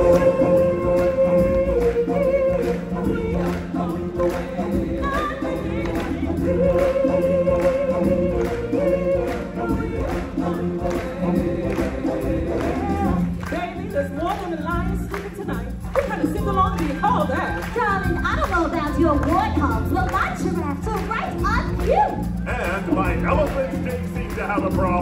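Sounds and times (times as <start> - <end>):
chorus singing long notes: 0.0 - 13.4
steady beat: 0.0 - 25.0.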